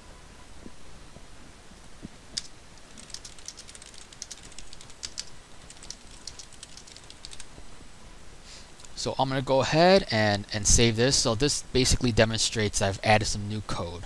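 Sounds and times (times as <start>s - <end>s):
computer keyboard typing: 2.4s - 7.5s.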